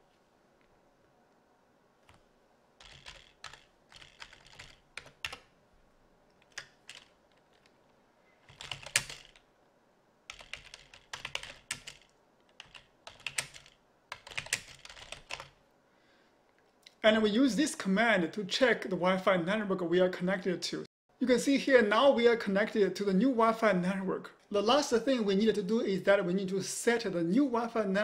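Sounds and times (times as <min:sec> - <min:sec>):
computer keyboard typing: 0:02.8 - 0:05.5, 0:06.4 - 0:07.7, 0:08.4 - 0:09.5, 0:10.3 - 0:15.6.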